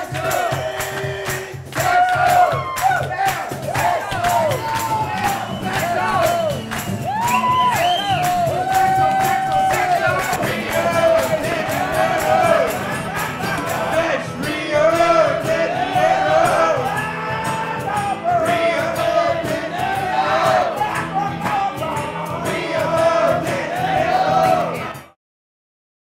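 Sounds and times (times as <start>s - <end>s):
guitar accompaniment: 0.0s - 25.2s
man singing into microphone: 8.5s - 25.0s.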